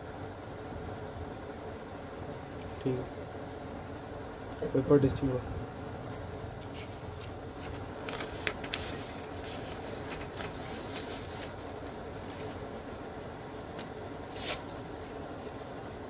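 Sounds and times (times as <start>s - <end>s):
steady background hum: 0.0s - 16.0s
paper sheets shuffled: 6.7s - 15.7s.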